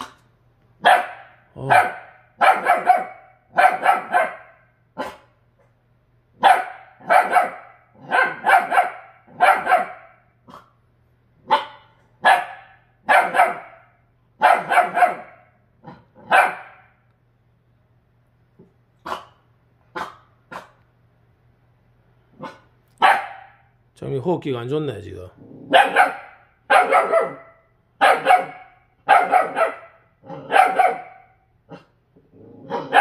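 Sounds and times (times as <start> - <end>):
dog barking: 0.8 - 5.4, 6.4 - 10.8, 11.4 - 16.9, 19.0 - 20.8, 22.4 - 23.7, 25.7 - 31.9, 32.6 - 33.0.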